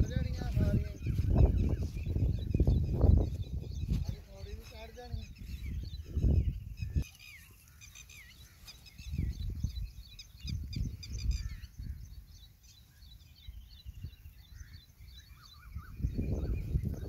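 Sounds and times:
low rumbling microphone noise: 0:00.0 - 0:07.0
small birds chirping: 0:00.0 - 0:17.0.

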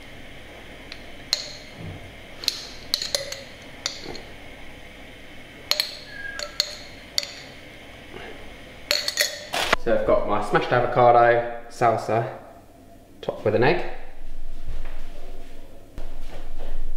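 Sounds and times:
metal spoon clinking on glass: 0:00.9 - 0:01.8, 0:02.4 - 0:04.3, 0:05.7 - 0:07.6, 0:08.9 - 0:09.5.

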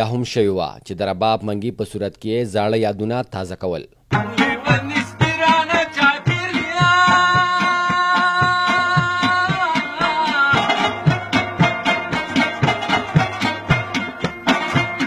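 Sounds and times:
person singing: 0:04.1 - 0:11.4
plucked lute: 0:04.1 - 0:15.0
pot drum beat: 0:04.1 - 0:15.0.

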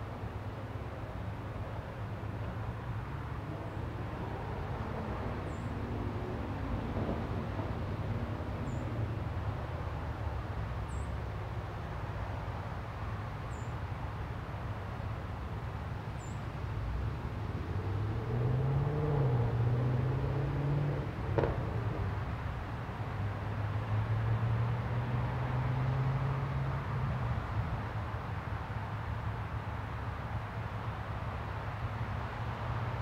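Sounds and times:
distant vehicle engine droning: 0:17.0 - 0:22.5.

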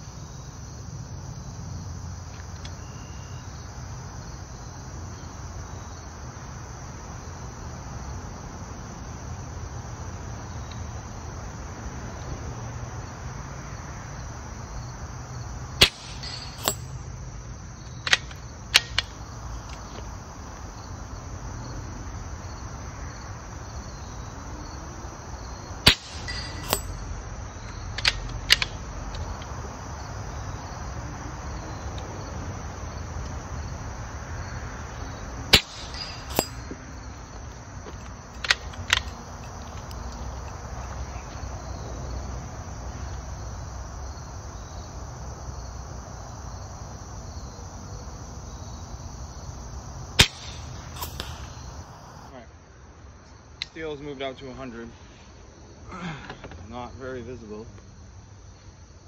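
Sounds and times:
insects droning: 0:00.0 - 0:59.0
air rifle shots: 0:15.8 - 0:17.0, 0:25.8 - 0:27.1, 0:35.5 - 0:36.7, 0:50.2 - 0:52.3.

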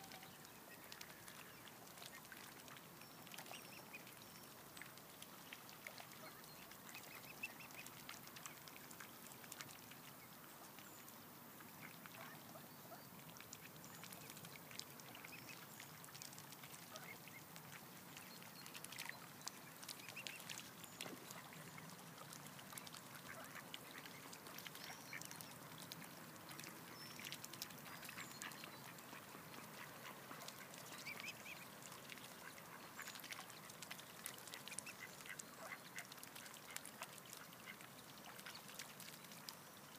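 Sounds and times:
bills clicking and splashing water: 0:13.2 - 0:39.9
ducks and swans quacking: 0:20.0 - 0:25.9, 0:27.5 - 0:38.8.

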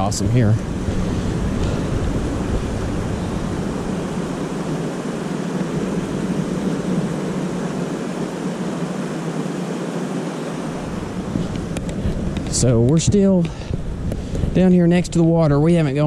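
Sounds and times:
low rumble: 0:00.0 - 0:08.3
stream rushing: 0:00.0 - 0:16.0.

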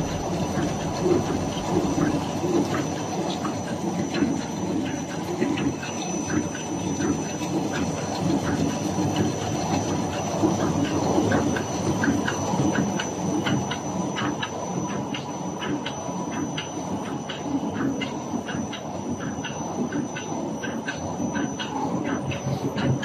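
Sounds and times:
high-pitched whine: 0:00.0 - 0:09.0
bag making machine rumbling: 0:00.0 - 0:15.8
rapid mechanical clicking: 0:00.0 - 0:23.0.

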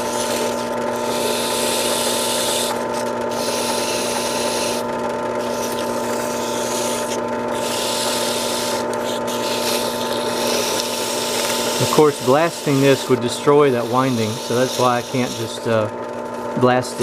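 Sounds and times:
drill press running: 0:00.0 - 0:17.0
sandpaper scratchy hiss: 0:07.6 - 0:15.6.

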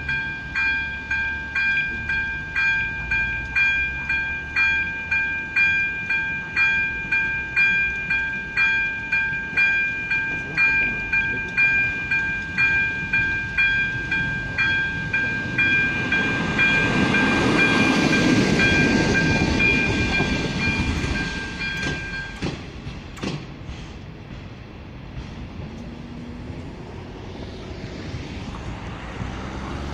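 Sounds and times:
level crossing bell ringing: 0:00.0 - 0:22.4
diesel railcar passing: 0:00.0 - 0:29.9.

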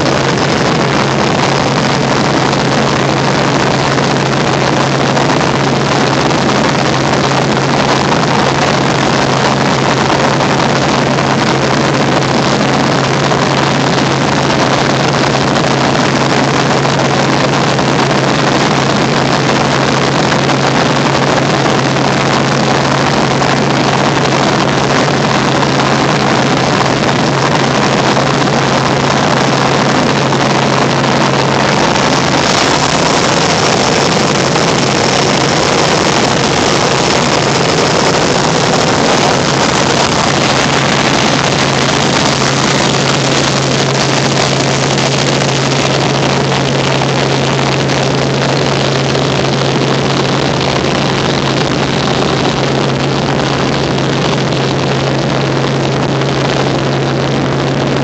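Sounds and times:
constant low hum: 0:00.0 - 0:58.0
helicopter engine and rotor noise: 0:00.0 - 0:58.0.

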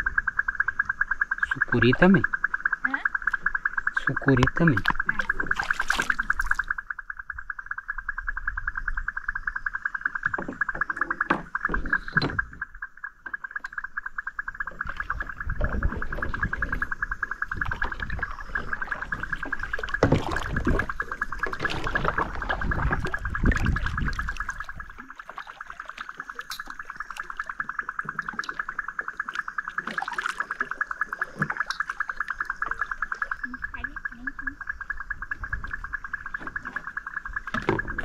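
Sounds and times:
low rumbling noise: 0:14.4 - 0:25.0.

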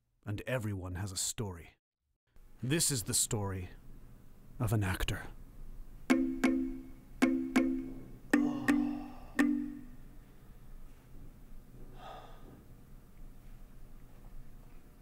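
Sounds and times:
ringing musical notes: 0:06.1 - 0:10.0
man exhaling: 0:08.4 - 0:09.4, 0:11.9 - 0:12.6.

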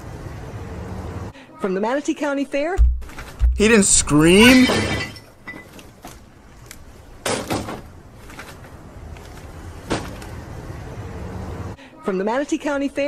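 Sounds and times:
low background noise: 0:00.0 - 0:13.0
knocks and thumps: 0:02.8 - 0:05.1.

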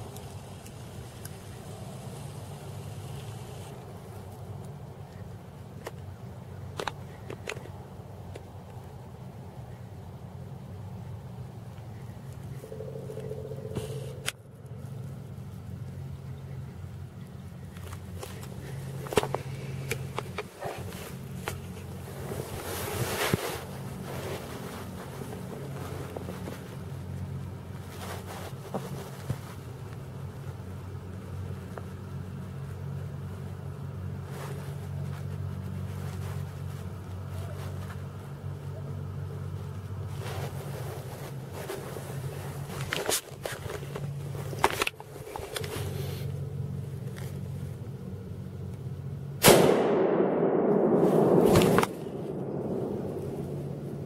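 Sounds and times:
steady low hum: 0:00.0 - 0:54.0
camera rushing and rubbing: 0:17.9 - 0:26.7
sudden loud bang: 0:49.4 - 0:53.8.

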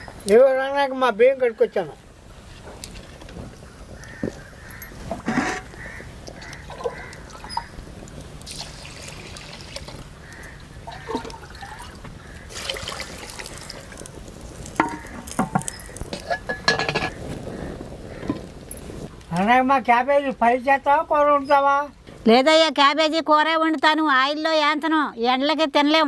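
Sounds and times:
water pouring into clay pot: 0:08.4 - 0:15.8
brass pot clinking on clay pot: 0:14.8 - 0:17.2.

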